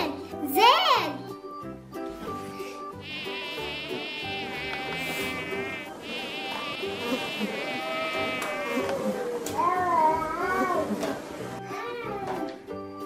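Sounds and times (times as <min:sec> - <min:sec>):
soft background music: 0:00.0 - 0:13.0
insect buzzing: 0:03.0 - 0:09.4.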